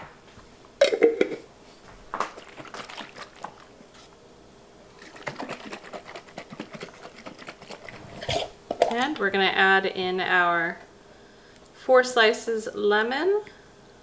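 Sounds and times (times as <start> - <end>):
tea sloshing in a jar: 2.3 - 3.7, 5.0 - 8.5.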